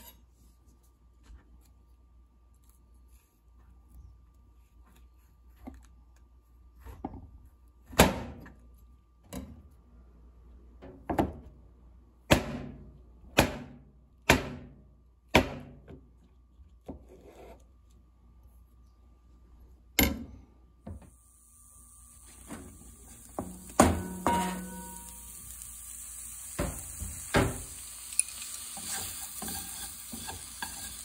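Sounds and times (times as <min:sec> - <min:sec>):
knife chopping on cutting board: 0:13.4 - 0:14.7, 0:15.3 - 0:15.8.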